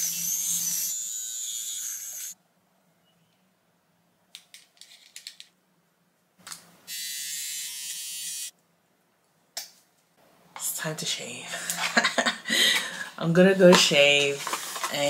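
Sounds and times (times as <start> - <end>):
facial hair trimmer buzzing: 0.0 - 2.4, 6.9 - 8.5.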